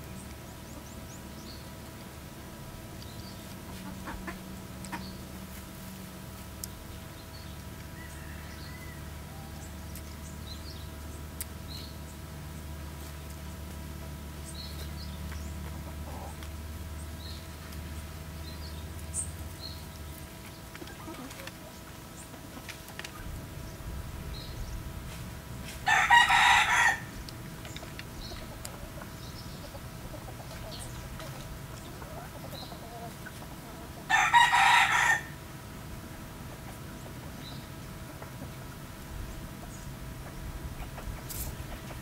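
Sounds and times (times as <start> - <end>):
rooster crowing: 7.8 - 9.7, 25.8 - 27.2, 34.1 - 35.4.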